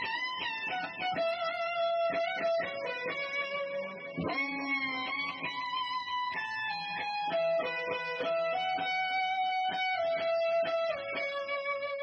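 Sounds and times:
electric guitar with echo: 0.0s - 12.0s.

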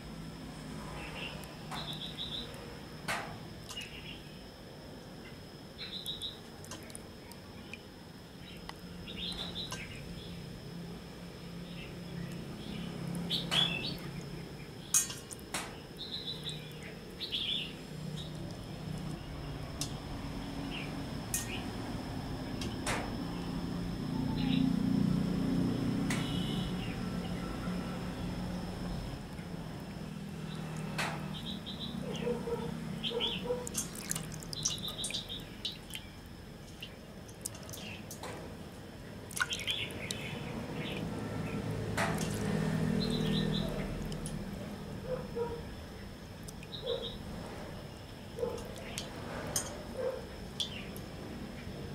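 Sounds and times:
small birds chirping: 5.8s - 10.4s, 11.6s - 15.1s, 15.8s - 19.5s, 24.2s - 24.8s, 30.4s - 38.2s, 39.4s - 44.3s, 45.0s - 47.2s
wet clicks and splashes: 6.0s - 7.1s, 15.0s - 15.8s, 18.2s - 19.2s, 33.6s - 38.4s, 39.2s - 41.1s, 42.0s - 44.6s, 46.4s - 46.8s, 48.5s - 49.7s, 50.5s - 51.1s
water dripping into steel basin: 6.0s - 7.8s, 33.5s - 38.2s, 39.3s - 40.3s, 42.0s - 44.5s, 50.6s - 50.8s.

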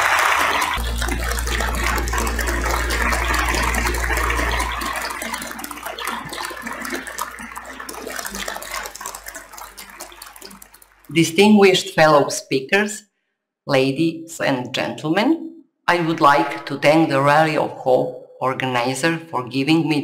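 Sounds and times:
applause: 0.0s - 11.4s
deep steady hum: 0.6s - 9.6s.

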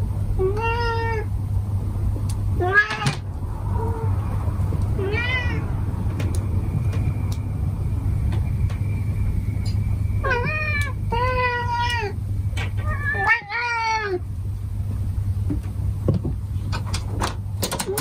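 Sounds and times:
steady low hum: 0.0s - 18.0s
cats meowing: 0.4s - 1.3s, 2.6s - 6.4s, 10.2s - 14.3s.

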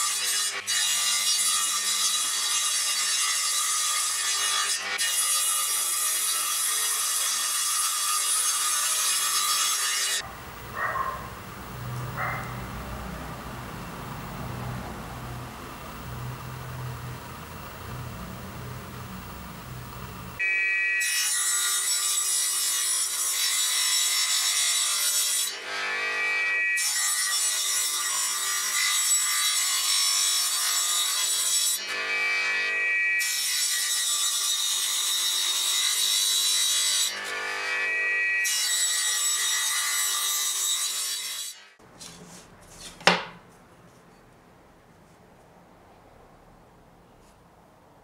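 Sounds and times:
table saw cutting wood: 0.0s - 43.3s
saw motor humming: 10.1s - 21.1s
wood handling: 41.9s - 44.2s.

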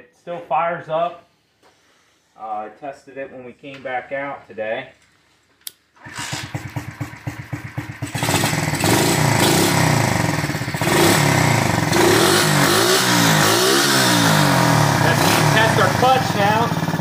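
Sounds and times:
motorbike engine idling and revving: 6.0s - 17.0s.

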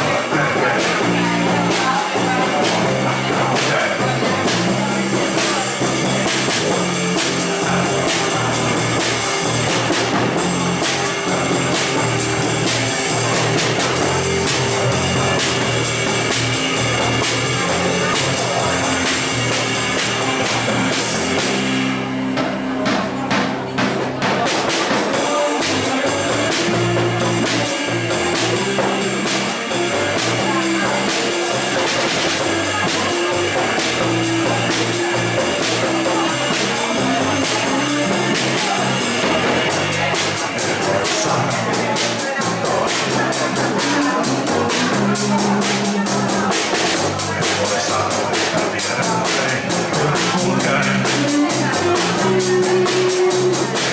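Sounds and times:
bass drum and cymbals: 0.0s - 53.9s
electric guitar: 0.0s - 53.9s
rock band playing: 0.0s - 53.9s.

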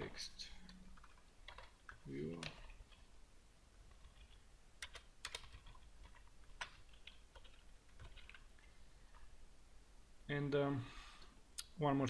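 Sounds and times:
faint keyboard keystrokes: 3.9s - 8.5s.

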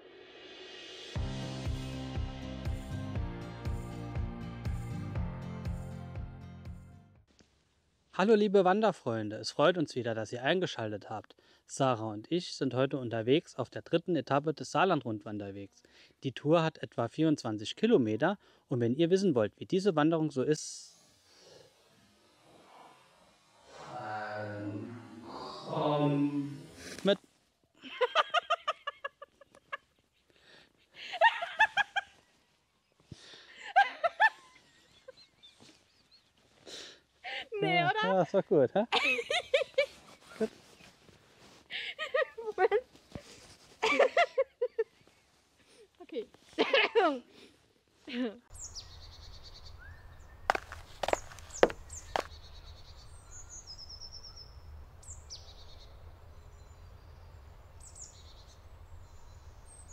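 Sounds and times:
person laughing: 27.8s - 30.2s, 31.0s - 32.2s, 33.6s - 35.3s, 38.9s - 40.5s, 41.7s - 42.5s, 43.8s - 44.9s
songbirds chirping: 34.6s - 36.6s, 48.5s - 59.9s.

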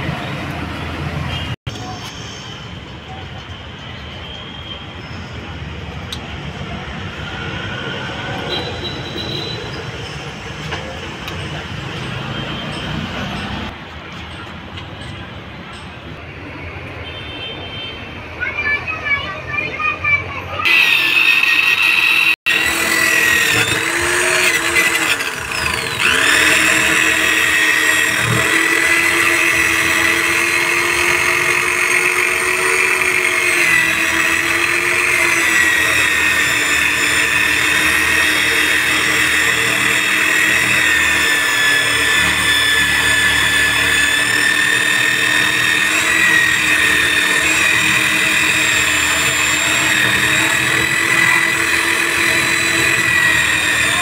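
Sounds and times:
electric drill whining: 20.6s - 54.0s.

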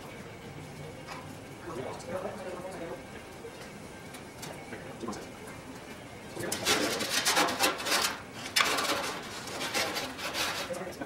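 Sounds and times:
wire rustling and scraping: 6.4s - 10.9s.

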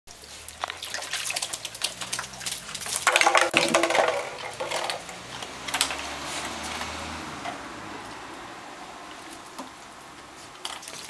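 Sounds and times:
water splashing in tub: 0.1s - 11.0s
plastic bottles knocking: 1.8s - 7.6s.

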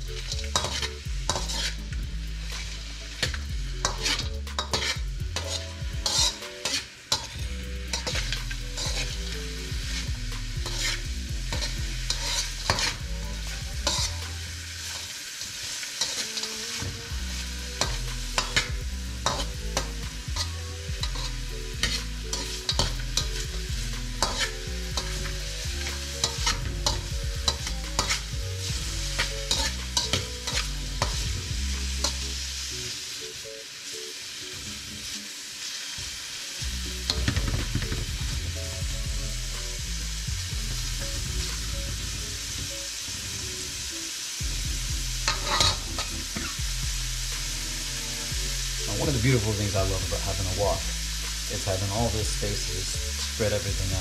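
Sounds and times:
vegetables sizzling in a wok: 0.0s - 54.0s
metal spatula scraping and clacking: 0.2s - 1.8s, 2.6s - 9.2s, 10.6s - 13.0s, 17.8s - 23.4s, 24.1s - 25.2s, 25.8s - 28.3s, 29.2s - 31.2s, 45.2s - 46.6s.

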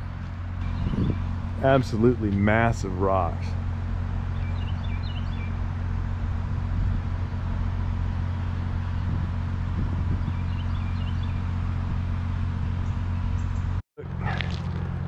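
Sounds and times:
low engine hum: 0.0s - 15.0s
high bird chirps: 0.6s - 1.3s, 4.3s - 5.6s, 10.0s - 11.6s.

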